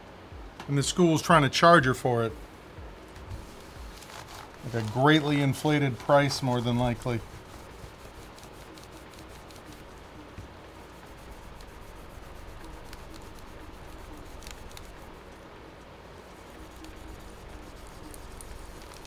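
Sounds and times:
paper wipe scrubbing laptop: 3.3s - 10.1s, 10.7s - 15.3s, 16.2s - 19.0s.

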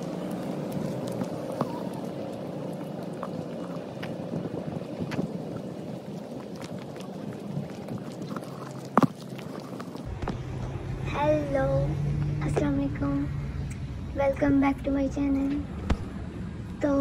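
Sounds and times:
faint hum: 0.0s - 8.7s, 9.9s - 17.0s
wind on microphone: 2.9s - 8.7s.

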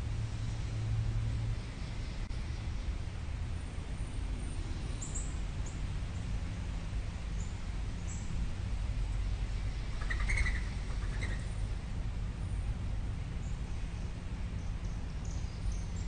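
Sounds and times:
birds chirping: 9.7s - 11.6s.

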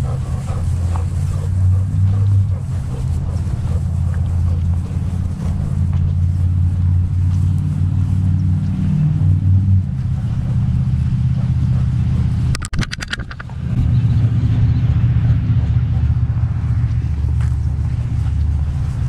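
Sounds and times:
low rumble: 0.0s - 19.0s
sharp rattling clicks: 12.5s - 13.6s.

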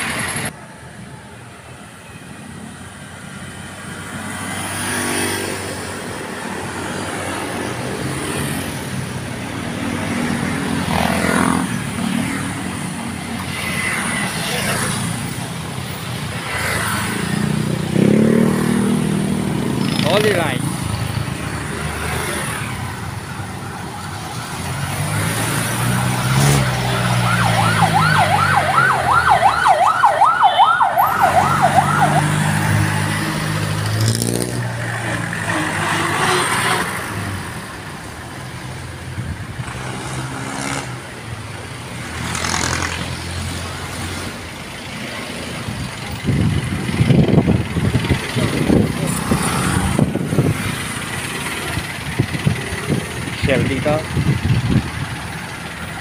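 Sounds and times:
street traffic passing: 0.0s - 56.0s
loud vehicle passing close: 16.4s - 23.6s, 24.2s - 37.7s, 46.3s - 56.0s
fast warbling siren: 26.6s - 33.0s.

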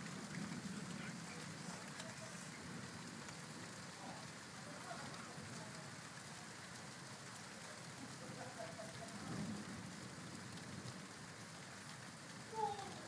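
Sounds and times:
rain hissing: 0.0s - 13.0s
thunder rumbling: 8.7s - 11.2s, 12.4s - 13.0s.

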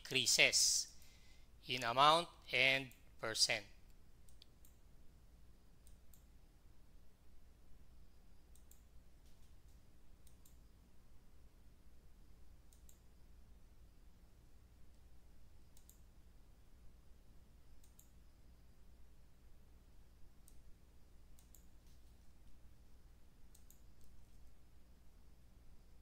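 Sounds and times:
low steady hum: 0.0s - 26.0s
computer mouse clicks: 3.9s - 4.8s, 5.8s - 6.3s, 8.5s - 10.7s, 12.7s - 13.1s, 15.7s - 16.1s, 17.8s - 18.2s, 20.4s - 20.7s, 21.3s - 22.1s, 23.5s - 24.5s.

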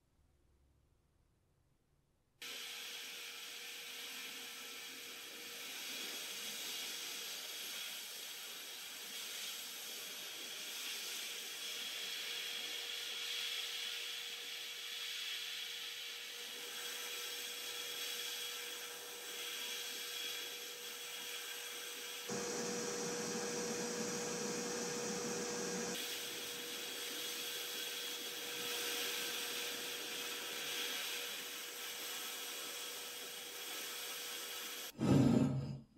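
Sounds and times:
sandblasting grit hiss: 2.4s - 35.0s
faint steady hum: 22.3s - 28.7s.

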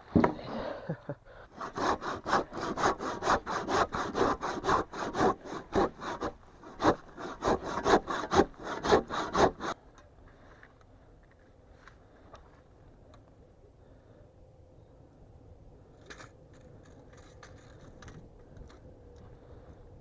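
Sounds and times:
handsaw cutting wood: 1.5s - 9.8s.

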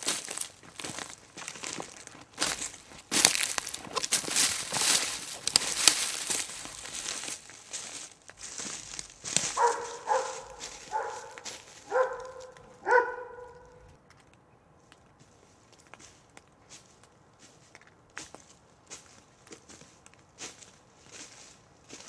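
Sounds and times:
footsteps crunching on trail: 0.0s - 14.0s, 15.2s - 22.0s
dog barking: 9.4s - 13.9s.

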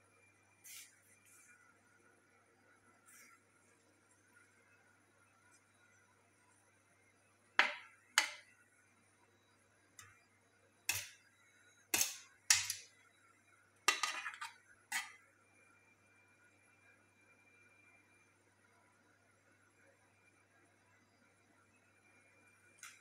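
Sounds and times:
metal spoon clanking on steel tray: 12.0s - 12.8s, 13.9s - 15.1s.

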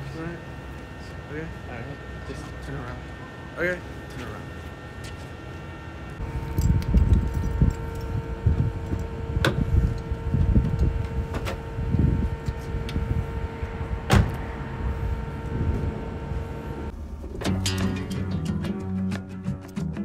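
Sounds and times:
steady hum: 0.0s - 19.5s
gusty low rumble: 6.2s - 18.2s
car door shutting thud: 14.0s - 14.4s.

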